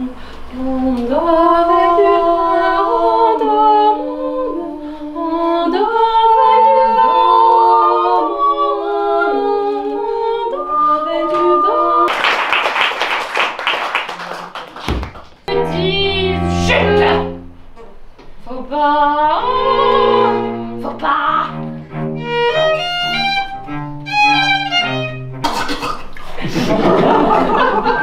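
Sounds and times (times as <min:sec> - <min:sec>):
woman singing unaccompanied: 0:00.0 - 0:12.1, 0:15.5 - 0:17.4, 0:18.4 - 0:21.6.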